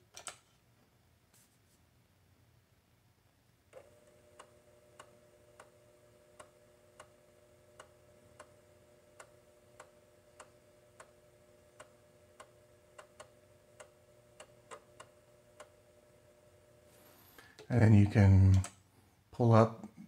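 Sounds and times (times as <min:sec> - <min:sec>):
floppy drive motor whirring: 0:03.8 - 0:16.9.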